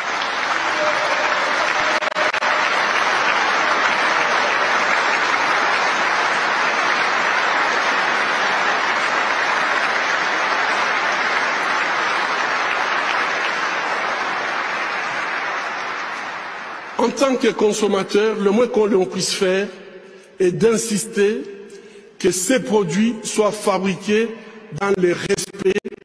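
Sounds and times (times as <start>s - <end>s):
large audience applauding: 0.0s - 19.6s.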